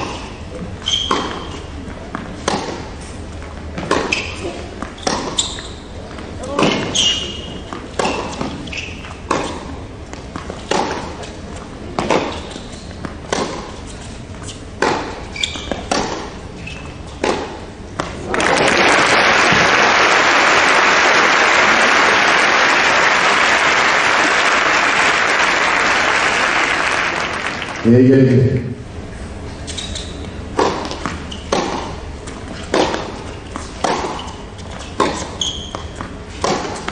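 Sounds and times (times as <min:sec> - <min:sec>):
racket striking tennis ball: 0:02.2 - 0:02.9, 0:03.8 - 0:05.4, 0:06.4 - 0:11.4, 0:12.0 - 0:13.9, 0:14.8 - 0:16.4, 0:17.2 - 0:18.3, 0:30.5 - 0:36.9
crowd applauding: 0:18.3 - 0:28.0.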